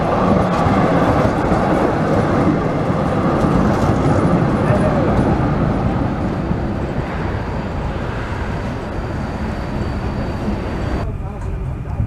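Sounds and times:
street traffic rumble: 0:00.0 - 0:12.0.

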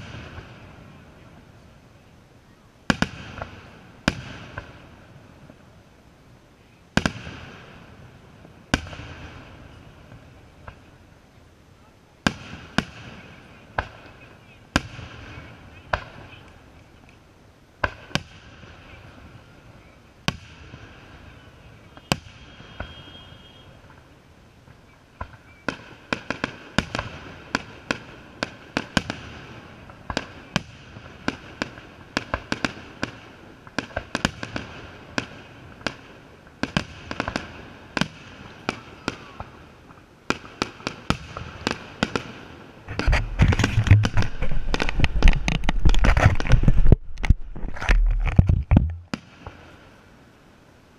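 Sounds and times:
firework crackles: 0:00.0 - 0:02.2, 0:02.8 - 0:50.9
firework shells bursting: 0:42.9 - 0:49.6.

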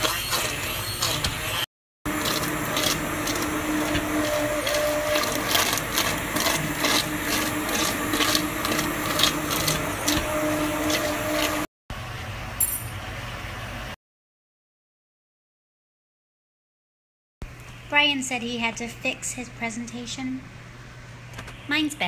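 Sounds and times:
immersion blender motor hum: 0:00.0 - 0:11.7.

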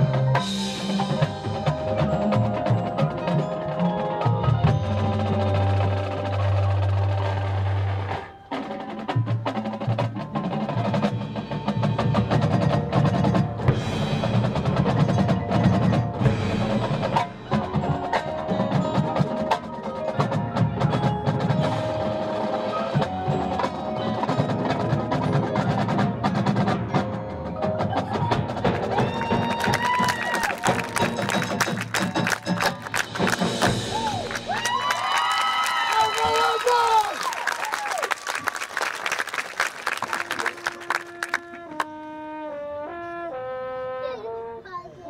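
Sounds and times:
rapid drum strokes: 0:08.6 - 0:35.3.

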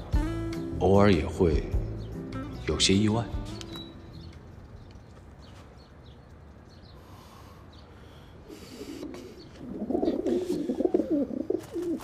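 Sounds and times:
pigeon cooing: 0:08.4 - 0:12.0.

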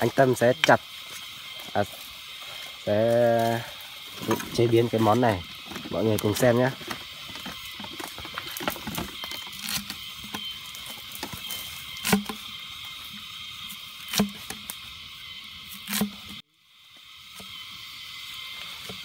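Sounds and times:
steady high hiss: 0:00.0 - 0:19.0
blade chopping: 0:11.2 - 0:12.4, 0:14.1 - 0:14.6.

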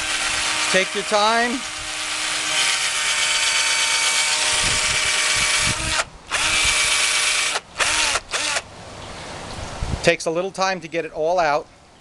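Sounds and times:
cordless drill running: 0:00.0 - 0:08.6.

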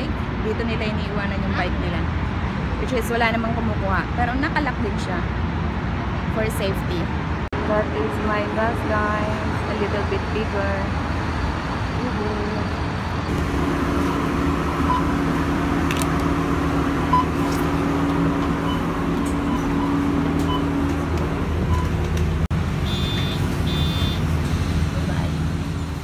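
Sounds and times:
bus engine and road drone: 0:00.0 - 0:26.0
short electronic beeps: 0:22.9 - 0:24.2.

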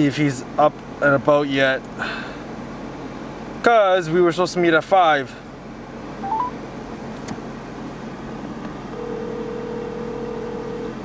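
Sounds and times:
car interior hum: 0:05.7 - 0:11.0
telephone ringback tone: 0:06.2 - 0:06.6, 0:09.0 - 0:10.9.

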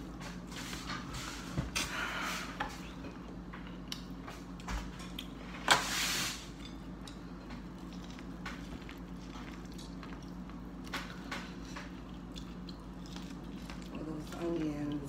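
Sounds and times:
chewing and smacking: 0:02.8 - 0:05.6, 0:06.6 - 0:15.0.

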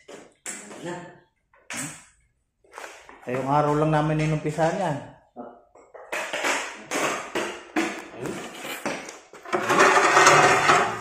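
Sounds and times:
ceramic tiles scraping and clacking: 0:05.9 - 0:11.0.

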